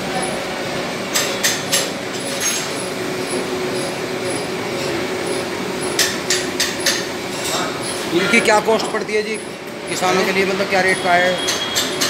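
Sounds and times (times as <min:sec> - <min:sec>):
workshop machinery humming: 0:00.0 - 0:12.0
sharp metallic knocks: 0:05.8 - 0:07.1.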